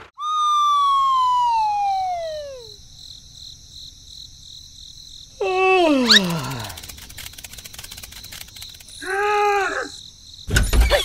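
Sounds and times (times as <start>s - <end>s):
falling whistle tone sliding down: 0.2s - 2.8s.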